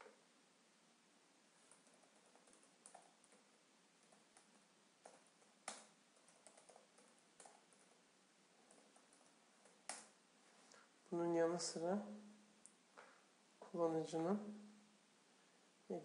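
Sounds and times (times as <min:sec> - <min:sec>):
faint keyboard typing: 0:01.6 - 0:10.9.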